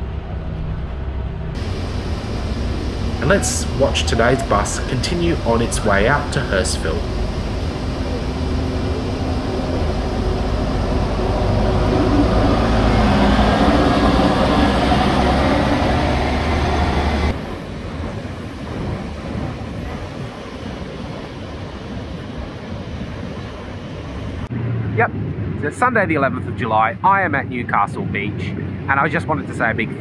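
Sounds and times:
bus engine driving past: 0:00.0 - 0:18.6
surf and wind hiss: 0:01.6 - 0:24.5.

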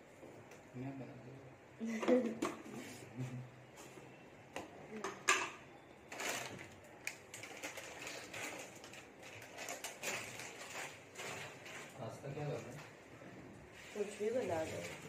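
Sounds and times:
kitchen utensils clicking and knocking: 0:05.0 - 0:05.6.

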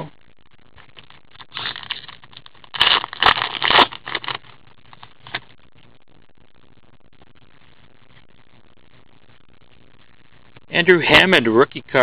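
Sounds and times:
card pack wrapper crinkling and tearing: 0:00.9 - 0:05.5.

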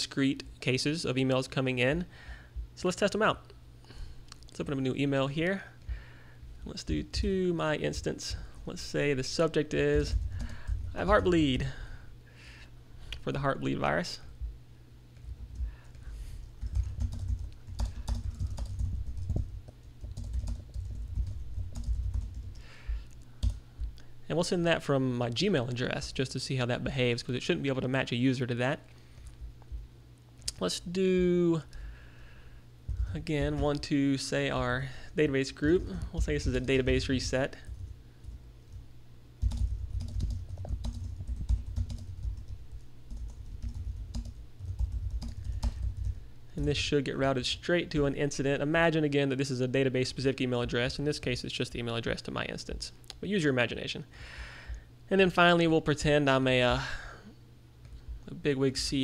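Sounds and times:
keyboard typing: 0:16.6 - 0:22.6, 0:39.4 - 0:46.2.

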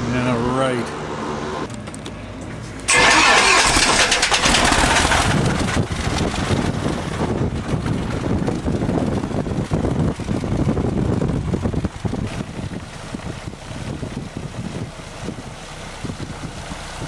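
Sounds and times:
piston aircraft engine starting: 0:02.9 - 0:06.7.

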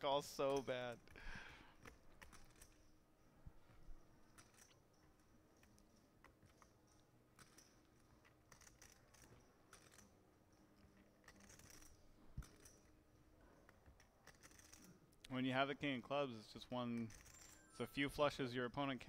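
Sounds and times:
poker chips clicking: 0:00.5 - 0:02.9, 0:04.3 - 0:10.2, 0:11.1 - 0:12.9, 0:13.6 - 0:15.3, 0:17.0 - 0:17.6.

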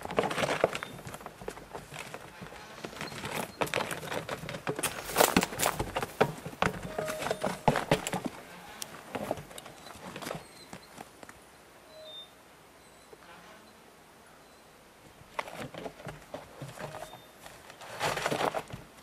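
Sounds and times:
horse hoofsteps on dirt: 0:00.0 - 0:11.2.

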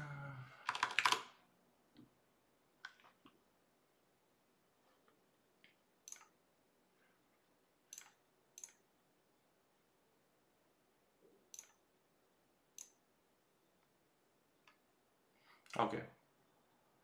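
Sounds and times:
computer mouse clicking: 0:06.0 - 0:06.4, 0:07.9 - 0:08.8, 0:11.5 - 0:11.8, 0:12.8 - 0:13.0.

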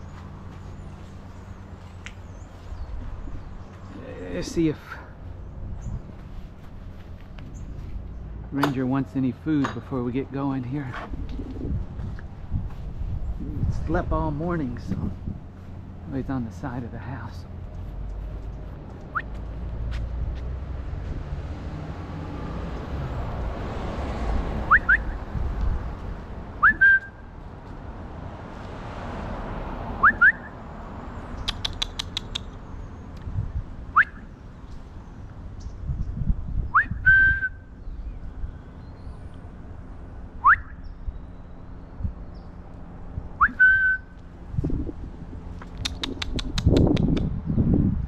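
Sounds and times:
person whistling: 0:24.7 - 0:25.1, 0:26.6 - 0:27.2, 0:30.0 - 0:30.5, 0:36.8 - 0:37.6, 0:40.4 - 0:40.8, 0:43.4 - 0:44.1.

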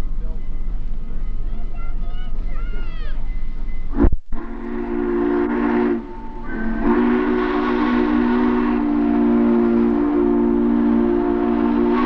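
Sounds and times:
steam locomotive whistle: 0:02.4 - 0:12.0.

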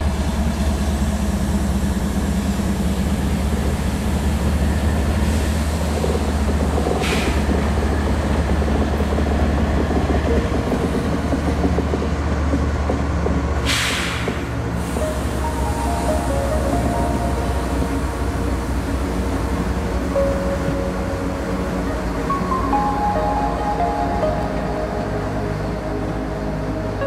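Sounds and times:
locomotive engine droning: 0:00.0 - 0:27.0
air hiss: 0:13.6 - 0:16.4.

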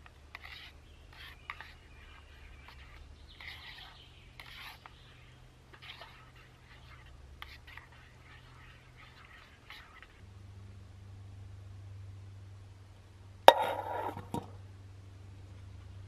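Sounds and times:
utensils scraping metal pot: 0:00.0 - 0:05.0, 0:05.7 - 0:10.2, 0:13.5 - 0:14.5
steady low rumble: 0:10.2 - 0:16.0.

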